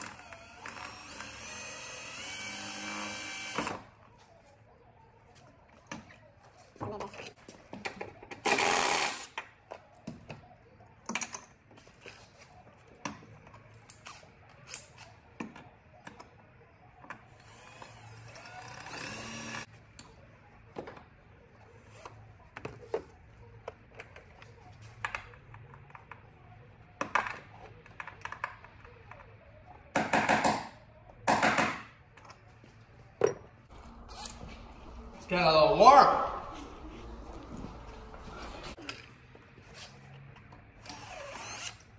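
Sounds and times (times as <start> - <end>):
cordless drill boring metal: 0.0 - 3.8, 17.4 - 19.6, 40.8 - 41.8.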